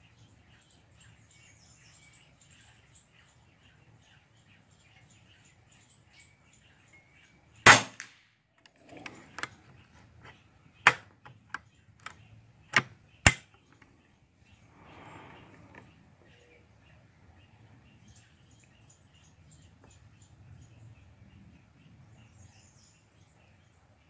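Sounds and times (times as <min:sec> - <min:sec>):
air rifle shot: 0:07.7 - 0:08.2.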